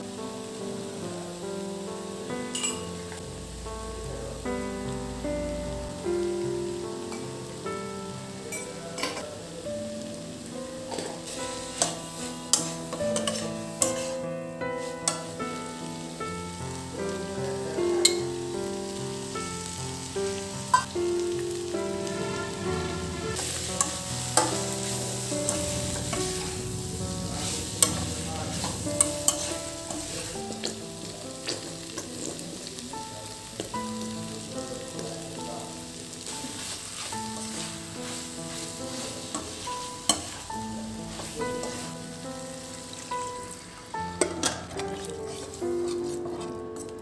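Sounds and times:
vegetables sizzling in oil: 0.0s - 46.9s
soft melody: 0.0s - 47.0s
metal spatula clacking on pan: 11.8s - 14.0s.

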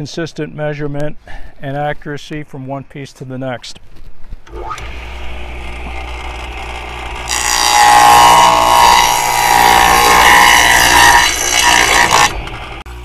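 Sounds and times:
saw blade cutting plywood: 4.5s - 12.8s
saw motor humming: 4.5s - 13.0s.

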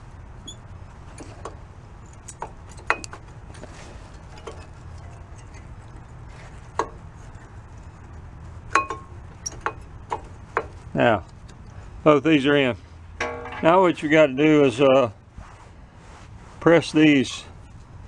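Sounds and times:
low steady hum: 0.0s - 18.0s
light metallic clicks and clinks: 6.8s - 11.8s.

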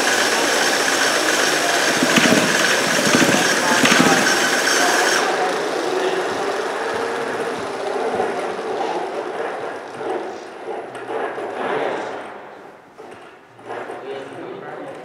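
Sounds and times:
robot electric motors whirring: 0.0s - 10.0s.

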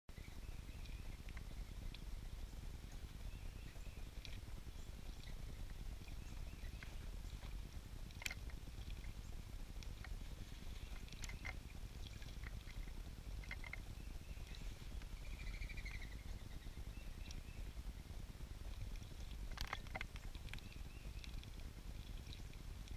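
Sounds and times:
steady low rumble: 0.1s - 22.9s
bird trill: 10.7s - 17.8s
high bird chirps: 13.5s - 17.7s.

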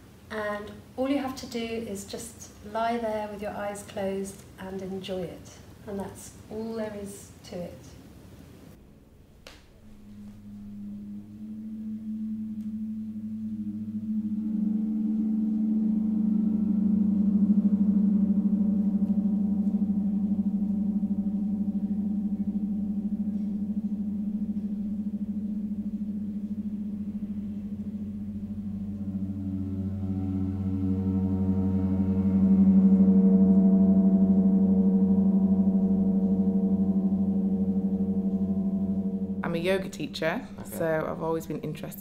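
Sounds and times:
gong ringing: 9.8s - 41.9s.

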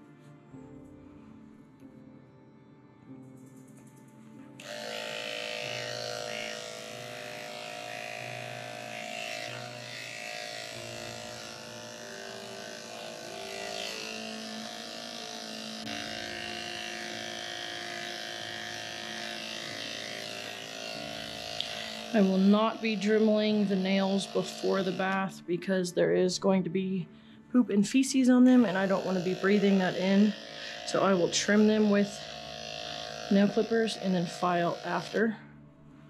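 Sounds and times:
electric clippers humming: 4.5s - 25.9s, 28.0s - 35.4s.

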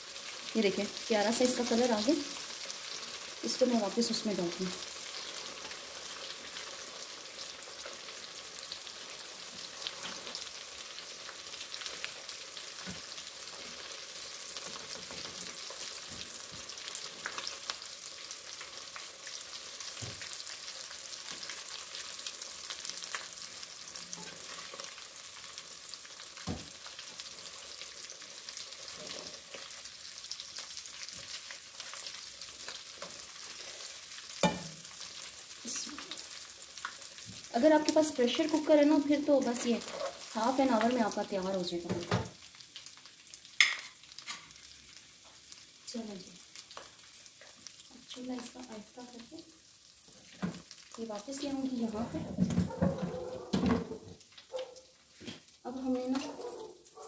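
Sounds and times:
meat sizzling in oil: 0.0s - 57.0s
metal tongs knocking on pan: 34.4s - 34.8s.

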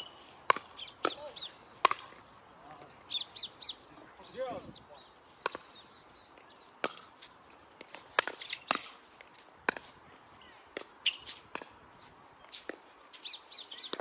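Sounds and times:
paddles hitting plastic ball: 0.4s - 2.3s.

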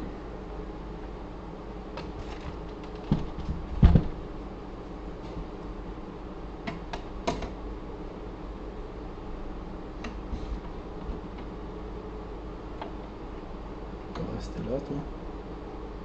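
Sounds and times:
knocks on metal computer case: 2.0s - 4.2s.

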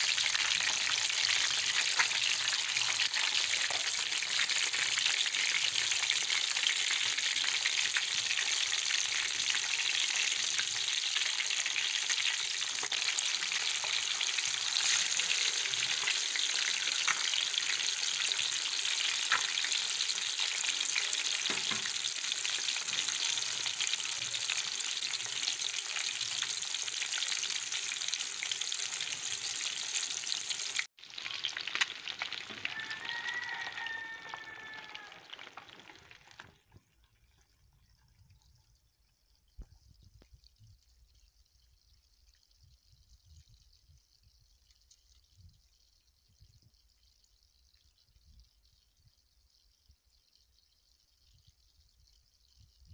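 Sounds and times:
fish sizzling in oil: 0.0s - 36.6s.

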